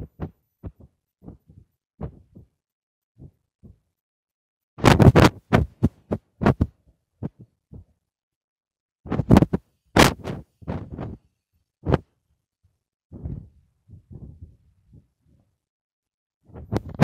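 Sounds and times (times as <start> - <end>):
phone handling bumps and rubs: 4.8 - 7.5, 9.1 - 11.2, 16.5 - 17.0.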